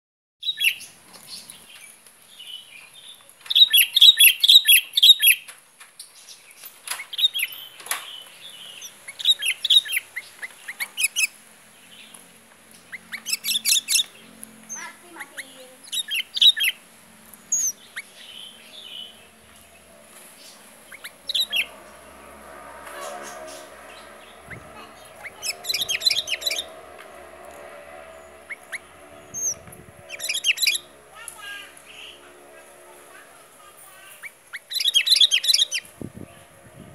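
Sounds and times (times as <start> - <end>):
bird singing: 0.4 - 12.2, 12.8 - 22.4, 23.0 - 31.0, 34.0 - 36.6
bulbul chirping song: 3.5 - 5.4, 8.5 - 11.4, 12.8 - 16.8, 17.4 - 19.2, 20.9 - 21.8, 24.0 - 26.8, 28.3 - 31.0, 34.2 - 35.9.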